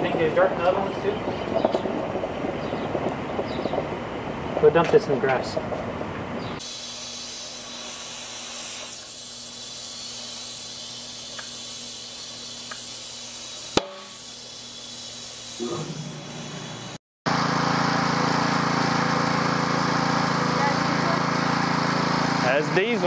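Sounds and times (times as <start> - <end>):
compressed air hissing from hose: 6.6 - 17.0
small engine running: 6.6 - 23.0.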